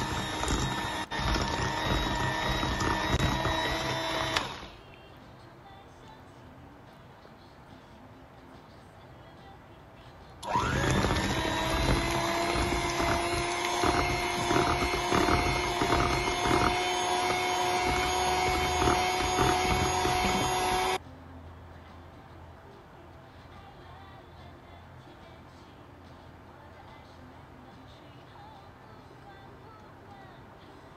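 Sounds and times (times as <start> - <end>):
electric mixer motor whine: 0.0 - 4.7, 10.4 - 21.0.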